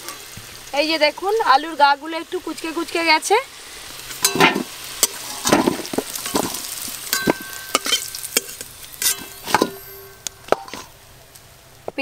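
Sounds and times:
potatoes sizzling in oil: 0.0s - 12.0s
spatula clinking on metal: 4.2s - 5.6s, 6.2s - 10.9s
steel bowl ringing: 4.2s - 5.6s, 6.2s - 11.0s.

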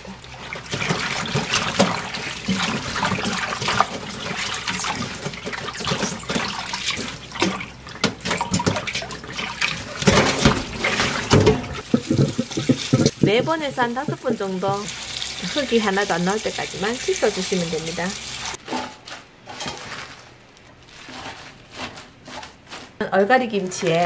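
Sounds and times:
water poured into sink: 0.0s - 13.3s
water splashing in a steel bowl: 0.0s - 18.6s.

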